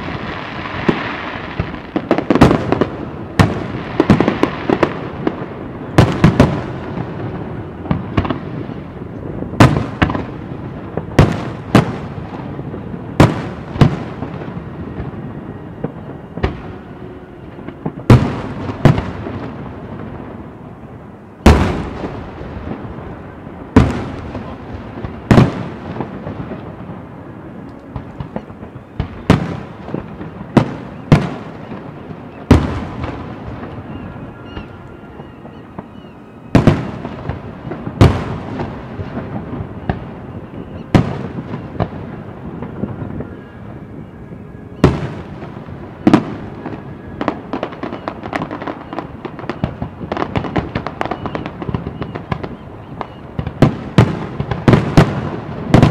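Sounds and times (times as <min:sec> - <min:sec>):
fireworks crackling pops: 0:00.0 - 0:16.8, 0:17.5 - 0:20.6, 0:21.4 - 0:55.9
fireworks booming: 0:00.0 - 0:55.9.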